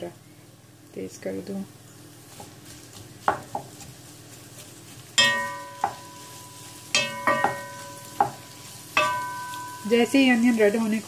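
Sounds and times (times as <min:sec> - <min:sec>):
onions sizzling in oil: 0:01.7 - 0:11.0
wooden spoon stirring onions: 0:01.9 - 0:11.0
wooden spoon knocking pot: 0:03.2 - 0:03.9, 0:05.2 - 0:10.4.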